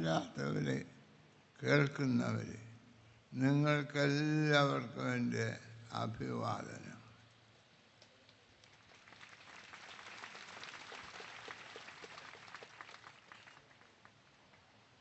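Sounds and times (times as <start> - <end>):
faint audience applause: 8.8 - 14.7.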